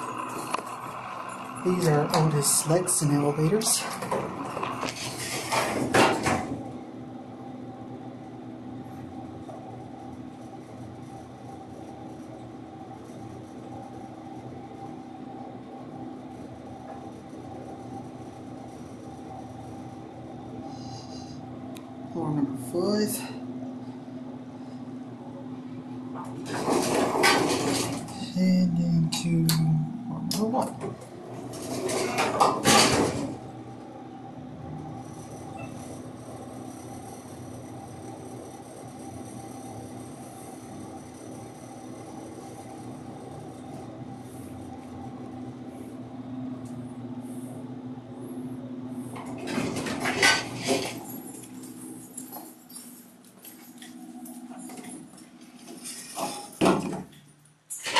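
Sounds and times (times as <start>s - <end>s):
elevator clattering mechanical noise: 0.0s - 7.0s, 25.8s - 47.1s, 49.0s - 57.9s
elevator hum: 0.0s - 57.9s
elevator doors clattering open: 1.6s - 6.8s, 26.1s - 28.4s, 30.3s - 33.6s, 49.1s - 51.7s, 54.6s - 57.2s.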